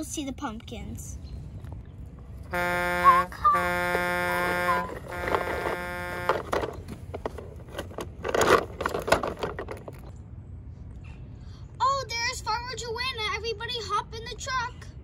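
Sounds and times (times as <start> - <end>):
toy truck horn honking: 2.5 - 6.8
plastic toy clicks and rustles: 4.9 - 10.1.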